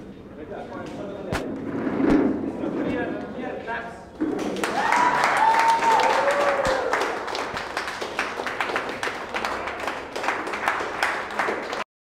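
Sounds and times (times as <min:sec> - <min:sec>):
small group clapping: 0:04.3 - 0:11.9.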